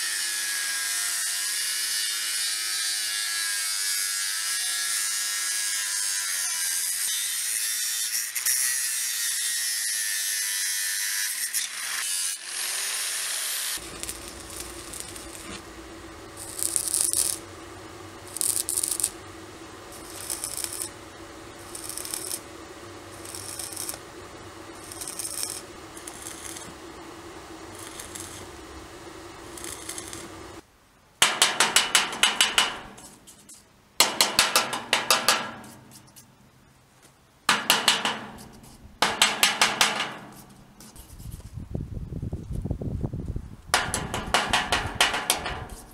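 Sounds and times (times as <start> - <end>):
angle grinder cutting steel pipe: 0.0 - 15.6, 16.4 - 17.4, 18.3 - 19.2, 19.9 - 22.5, 23.1 - 24.0, 24.7 - 26.8, 27.7 - 28.5, 29.4 - 30.4
steady hum: 13.8 - 36.8
sharp metallic knocks: 31.2 - 33.1, 34.0 - 35.9, 37.5 - 40.5, 43.8 - 45.9.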